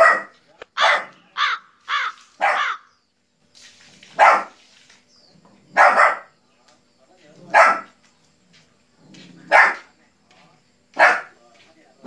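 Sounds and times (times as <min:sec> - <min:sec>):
dog barking: 0:00.0 - 0:01.2, 0:02.4 - 0:02.8, 0:04.2 - 0:04.6, 0:05.7 - 0:06.4, 0:07.5 - 0:08.0, 0:09.4 - 0:09.9, 0:11.0 - 0:11.4.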